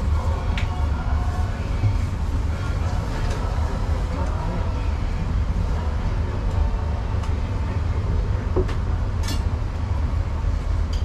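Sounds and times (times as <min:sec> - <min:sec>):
steady low rumble: 0:00.0 - 0:11.0
utensils and dishes clinking: 0:09.2 - 0:09.5.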